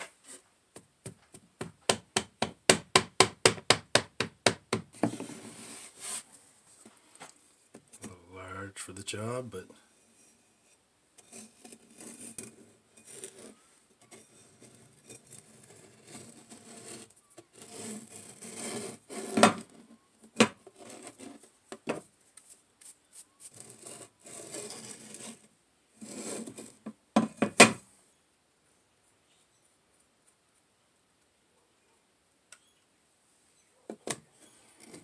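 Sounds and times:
steel scraping sand on wooden board: 5.0s - 6.3s, 10.0s - 19.7s, 23.4s - 26.8s.

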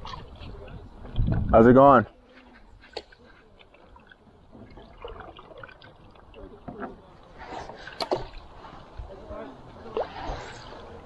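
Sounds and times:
paddle pulling through water: 0.0s - 11.0s
water drips and splashes: 2.8s - 11.0s.

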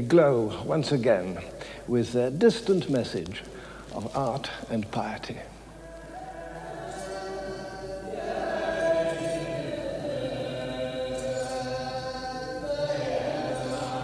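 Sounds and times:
voices chanting together: 5.7s - 14.0s.

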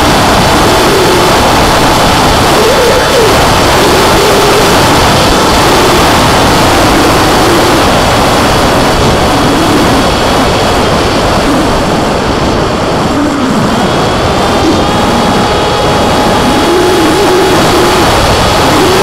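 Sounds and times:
electric motor and propeller whine: 0.0s - 19.0s
wind rushing over microphone: 0.0s - 19.0s.

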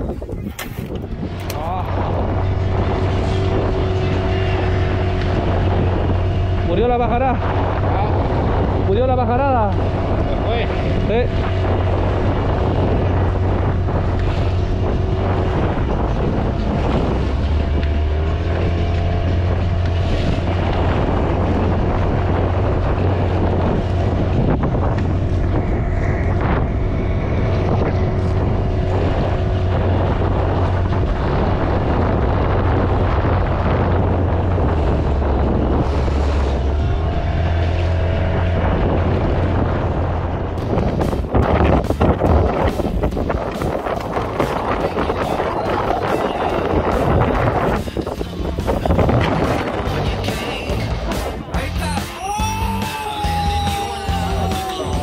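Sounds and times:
boat motor running: 0.0s - 55.0s
wind on microphone: 0.0s - 55.0s.

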